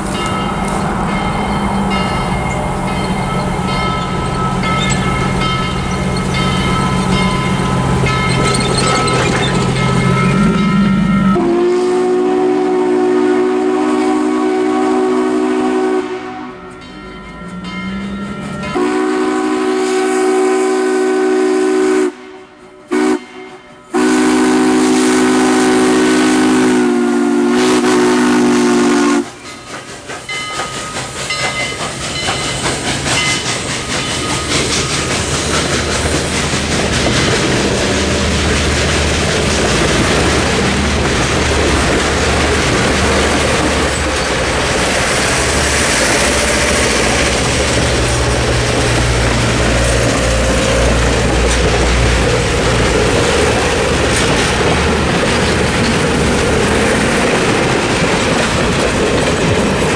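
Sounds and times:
train wheels clickety-clack on rails: 0:00.0 - 0:13.0, 0:23.0 - 0:59.9
steam locomotive whistle blasts: 0:10.5 - 0:16.9, 0:18.7 - 0:29.5.

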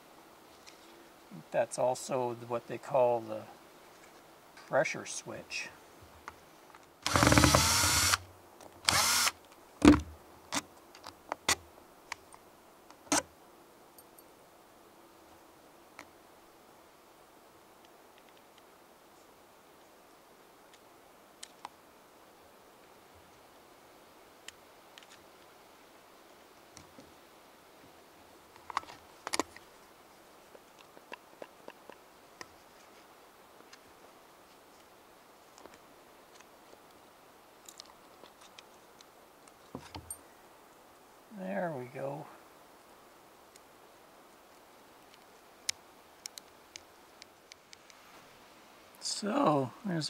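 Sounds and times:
cordless drill whirring: 0:07.0 - 0:08.2, 0:08.9 - 0:09.3.

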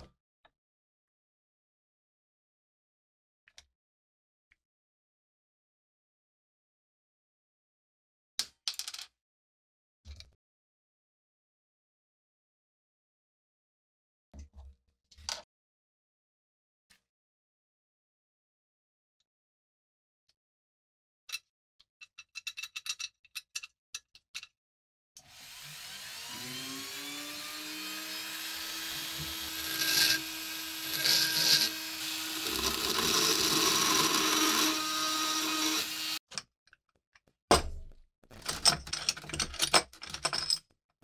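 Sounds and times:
rotary tool grinding metal: 0:25.2 - 0:36.2.

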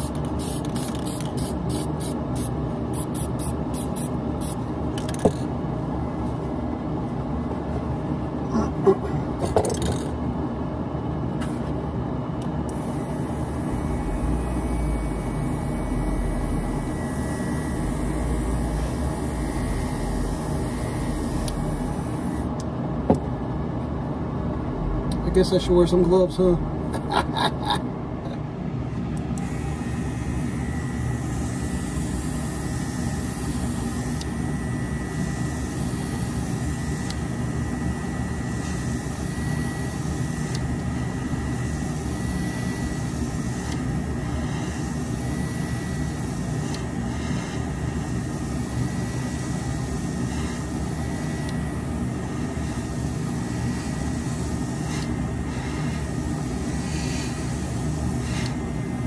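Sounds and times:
electric motor whirring: 0:12.7 - 0:22.5
high whine: 0:12.7 - 0:22.6, 0:24.4 - 0:28.4.

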